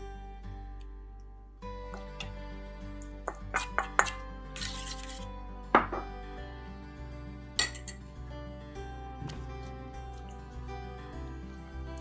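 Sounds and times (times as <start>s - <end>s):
soft background music: 0.0s - 12.0s
spoon clinking against bowls: 3.3s - 5.2s, 7.6s - 8.0s.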